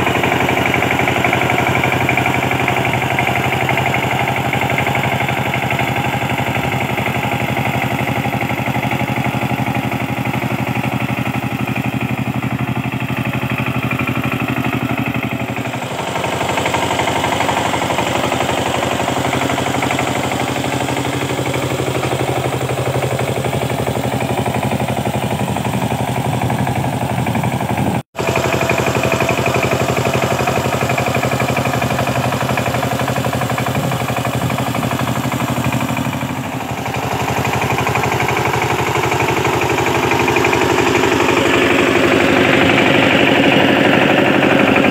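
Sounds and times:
power tiller engine running: 0:00.0 - 0:44.9.

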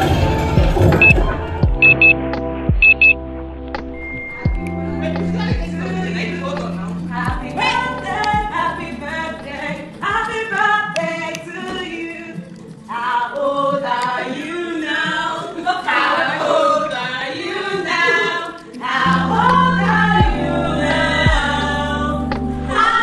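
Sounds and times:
low bass: 0:00.0 - 0:09.6, 0:19.1 - 0:23.0
voices singing together: 0:04.5 - 0:23.0.

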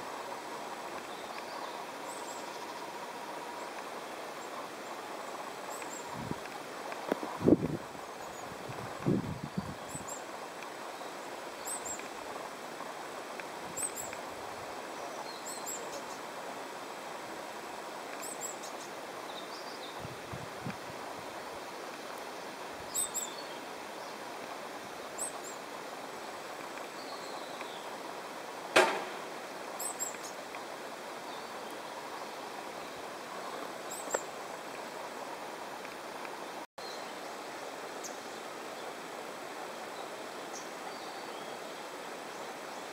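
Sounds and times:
outdoor valley ambience: 0:00.0 - 0:42.9
sharp click: 0:28.8 - 0:29.3.

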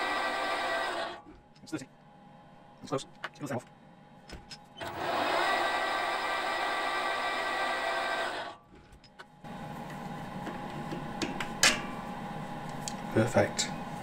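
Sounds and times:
metal lathe whining: 0:00.0 - 0:01.2, 0:04.8 - 0:08.6
steady hum: 0:00.0 - 0:14.0.

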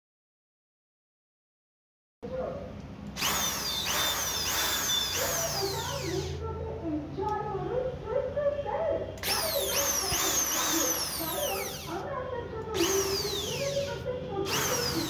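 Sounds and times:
electric drill whine: 0:03.2 - 0:06.4, 0:09.2 - 0:12.0, 0:12.7 - 0:15.0.

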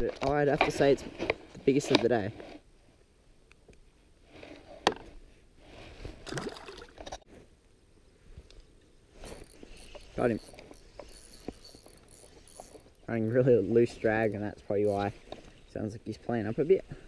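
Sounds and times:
fishing reel fast ticking: 0:09.2 - 0:13.1.

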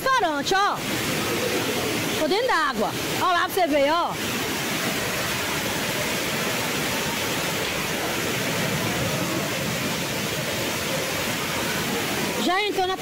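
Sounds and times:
floodwater rushing down steps: 0:00.0 - 0:13.0
heavy rain falling: 0:00.0 - 0:13.0.

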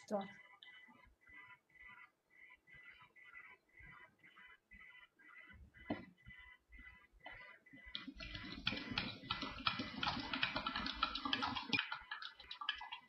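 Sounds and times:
spoon stirring in a glass: 0:08.0 - 0:13.0.

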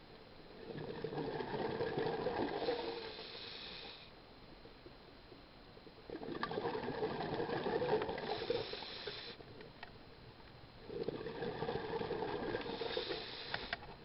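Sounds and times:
diver exhaling bubbles: 0:00.6 - 0:03.2, 0:06.1 - 0:08.7, 0:10.9 - 0:13.6.

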